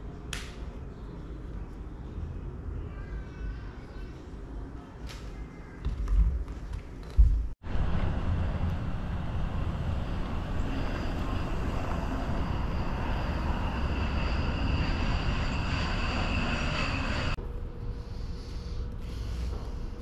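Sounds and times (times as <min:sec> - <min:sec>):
outdoor rumble and hiss: 0:00.0 - 0:20.0
faint high whine: 0:07.7 - 0:20.0.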